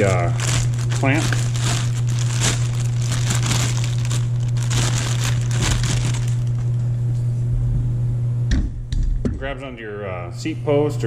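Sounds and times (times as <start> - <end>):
plastic bag crinkling: 0.0 - 6.8
steady low hum: 0.0 - 11.0.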